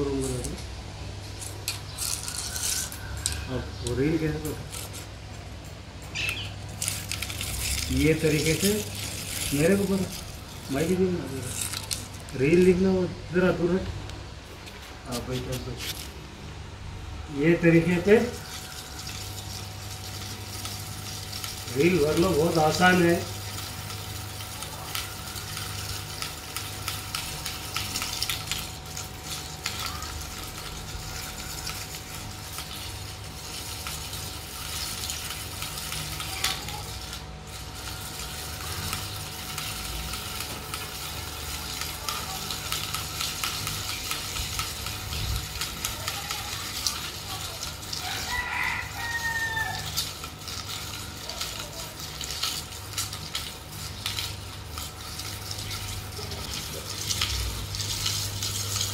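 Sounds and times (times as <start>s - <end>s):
rooster crowing: 2.2s - 4.5s, 18.0s - 19.3s, 47.9s - 50.1s.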